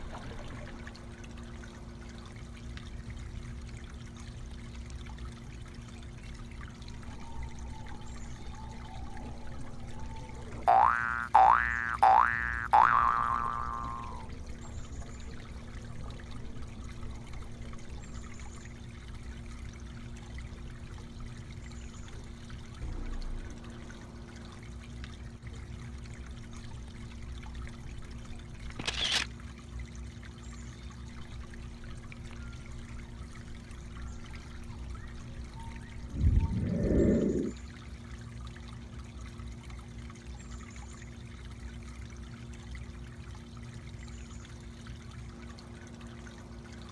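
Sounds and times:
pond water trickling: 0:00.0 - 0:46.9
sharp click: 0:28.7 - 0:29.3
low rumble: 0:35.9 - 0:37.6.

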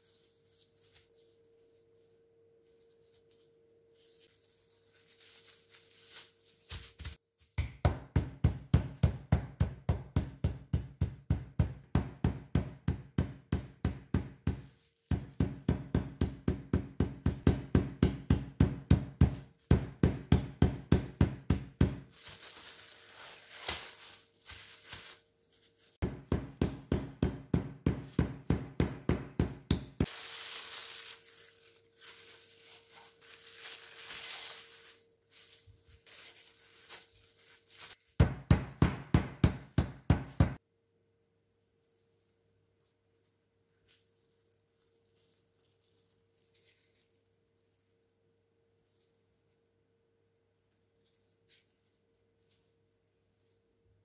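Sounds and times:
plastic wrap crinkling: 0:02.6 - 0:07.2, 0:21.9 - 0:26.0, 0:30.0 - 0:38.4, 0:43.9 - 0:48.0
meat mallet pounding meat: 0:07.6 - 0:22.1, 0:26.0 - 0:30.1, 0:38.2 - 0:40.6.

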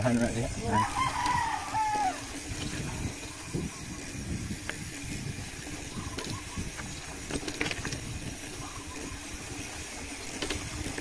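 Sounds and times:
steady rushing noise: 0:00.0 - 0:11.0
rooster crowing: 0:00.6 - 0:02.4.

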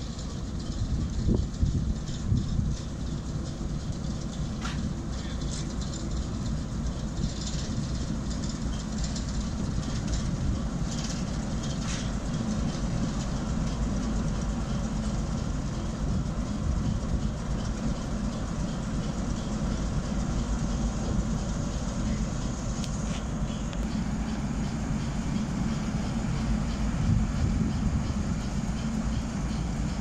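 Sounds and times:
diesel locomotive engine running: 0:00.0 - 0:30.0.

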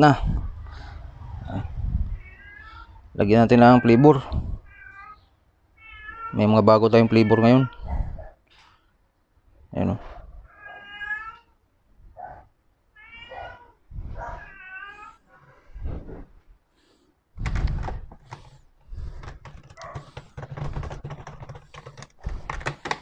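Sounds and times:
cat meowing: 0:01.6 - 0:03.0, 0:04.2 - 0:06.4, 0:07.0 - 0:08.0, 0:10.4 - 0:11.6, 0:12.9 - 0:15.2.

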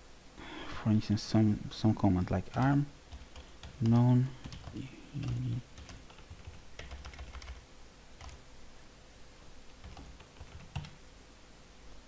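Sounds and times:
faint keyboard keystrokes: 0:02.4 - 0:07.6.

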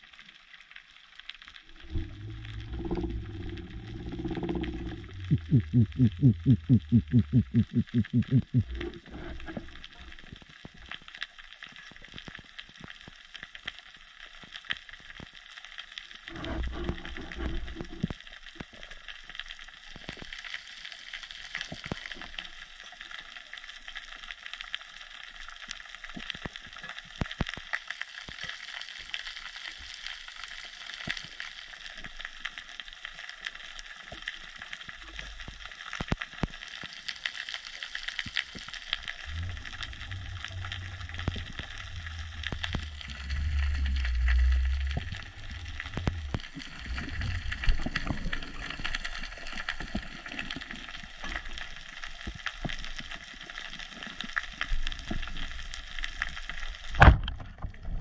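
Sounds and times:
low rumble: 0:01.6 - 0:10.1, 0:38.8 - 0:48.8
snapping shrimp crackling underwater: 0:25.8 - 0:57.7.

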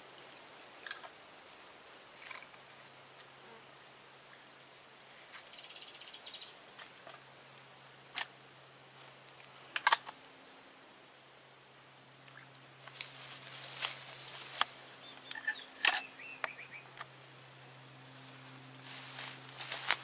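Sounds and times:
insect buzz: 0:00.0 - 0:20.0.

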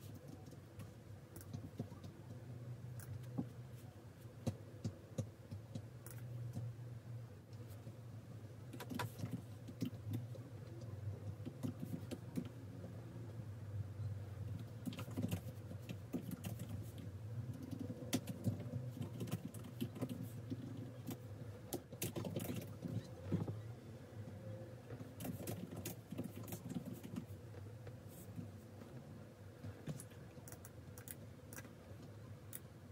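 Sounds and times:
low steady hum: 0:00.0 - 0:32.9
laptop keyboard typing: 0:08.7 - 0:12.6, 0:14.5 - 0:23.5, 0:25.2 - 0:27.3.

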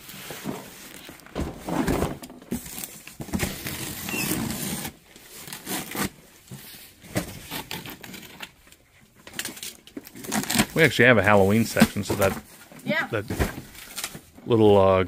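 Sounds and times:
cardboard box scraping and knocking: 0:00.2 - 0:04.9
box cutter slitting tape: 0:02.7 - 0:06.2, 0:09.4 - 0:10.8
rustling cardboard: 0:09.4 - 0:14.4.

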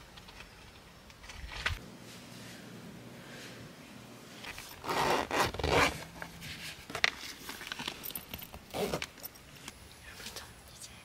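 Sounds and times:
zipper rasping: 0:04.7 - 0:06.1, 0:08.7 - 0:09.1.

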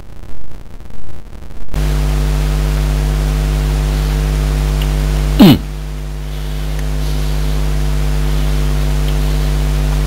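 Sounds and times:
loud steady low buzz: 0:00.0 - 0:10.0.

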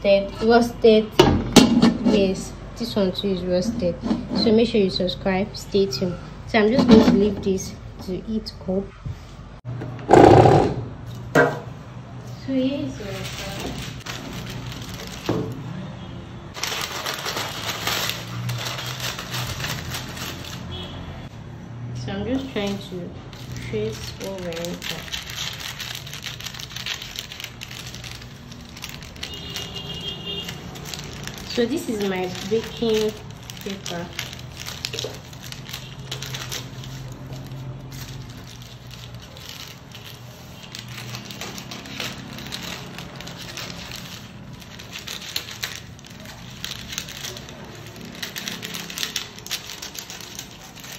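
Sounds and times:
baking paper crinkling: 0:12.3 - 0:15.8, 0:16.5 - 0:21.2, 0:22.2 - 0:50.9.

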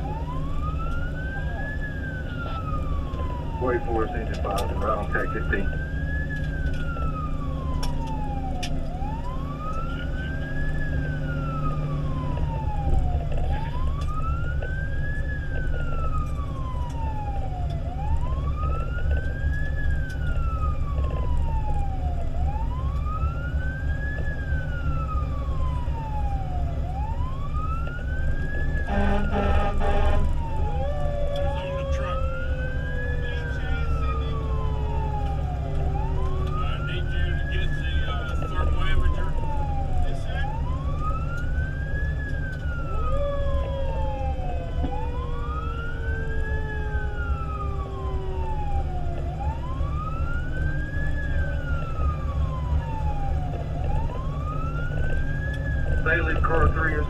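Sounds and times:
fire engine siren wailing: 0:00.0 - 0:57.0
lower falling siren tone: 0:00.0 - 0:57.0
truck engine and road rumble: 0:00.0 - 0:57.0
horn blast: 0:28.9 - 0:30.3.

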